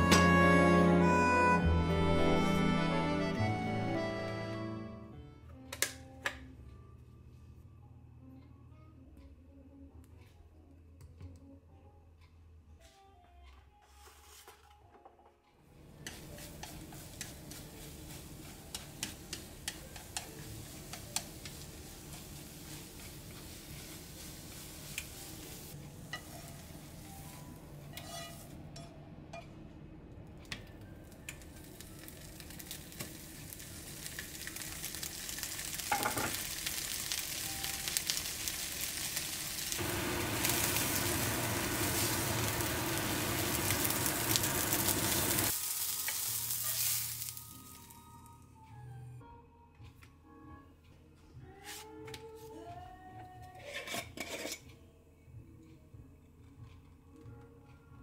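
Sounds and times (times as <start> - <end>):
soft frying: 15.8 - 29.0, 30.4 - 48.2
chopsticks tapping frying pan: 16.0 - 25.4, 34.1 - 46.8
sausages sizzling in frying pan: 16.1 - 27.4, 31.5 - 47.9.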